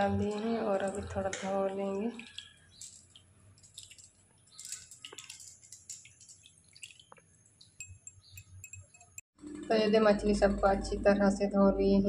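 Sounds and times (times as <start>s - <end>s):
water splashing in bowl: 0.0s - 8.8s.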